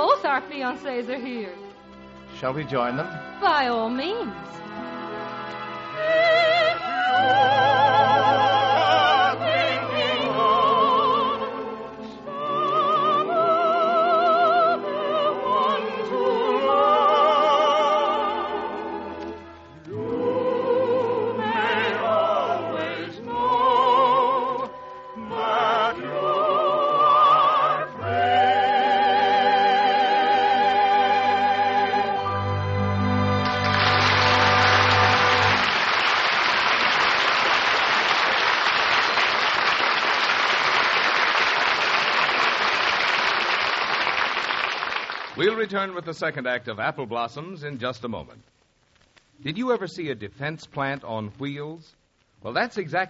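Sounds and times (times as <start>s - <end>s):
musical accompaniment: 0.0s - 46.2s
operatic singing with vibrato: 5.8s - 19.2s, 19.8s - 36.0s.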